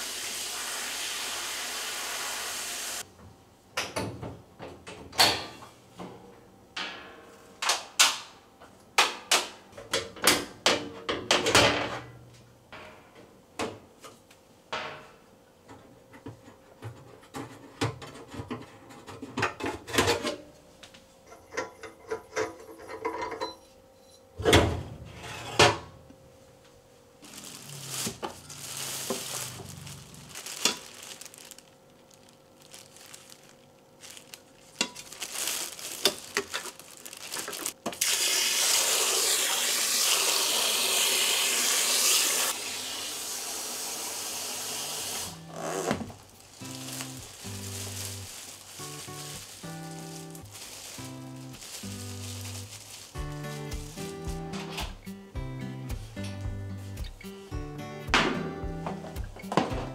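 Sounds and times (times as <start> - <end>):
plastic bag rustling: 27.2 - 38.0, 45.2 - 55.1.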